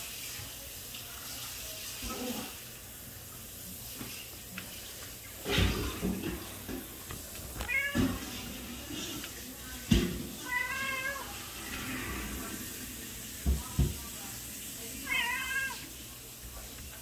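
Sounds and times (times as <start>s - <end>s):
cat meowing: 7.6s - 8.2s, 10.4s - 11.4s, 15.0s - 15.9s.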